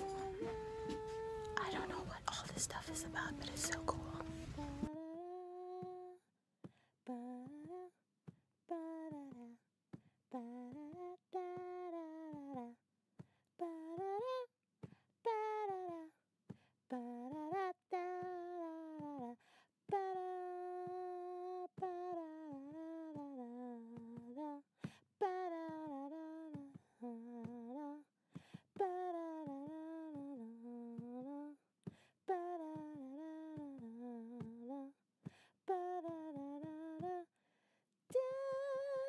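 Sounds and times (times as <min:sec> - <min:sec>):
person humming a tune: 0:00.0 - 0:06.2.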